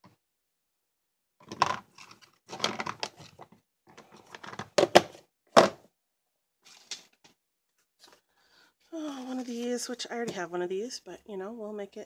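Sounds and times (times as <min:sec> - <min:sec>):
plastic bottles clattering: 0:01.4 - 0:05.8.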